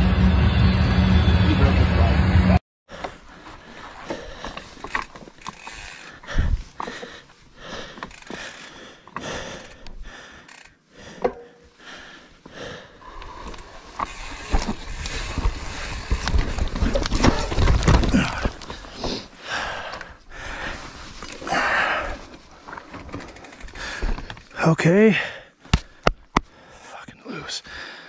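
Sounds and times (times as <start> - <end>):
bike tyres over roots and dirt: 2.9 - 26.0
bike crash: 13.9 - 19.3.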